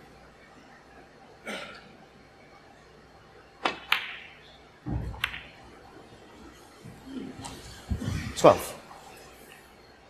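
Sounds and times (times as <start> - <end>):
snooker balls clicking together: 5.1 - 5.6.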